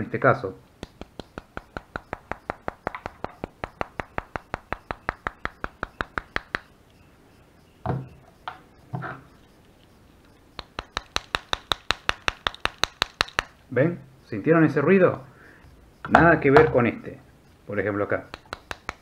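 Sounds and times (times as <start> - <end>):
knuckle rapping on plastic: 0.8 - 6.7, 10.6 - 13.6, 18.2 - 19.0
dull thuds of knives handled: 16.0 - 16.8.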